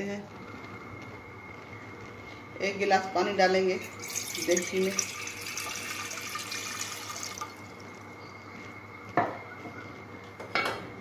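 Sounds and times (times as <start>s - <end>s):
water pouring into metal pot: 3.8s - 8.0s.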